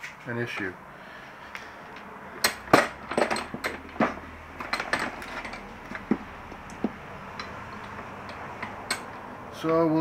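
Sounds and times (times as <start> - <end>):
metal parts clinking against a vise: 2.4 - 9.8.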